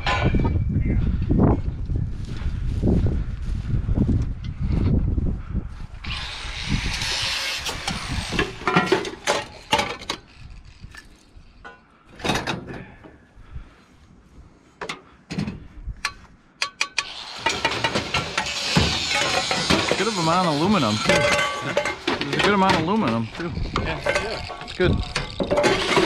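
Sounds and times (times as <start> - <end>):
scrap metal knocks and clanks: 0.0 - 0.7, 8.0 - 10.3, 14.8 - 26.0
scrap metal scraping: 17.0 - 26.0.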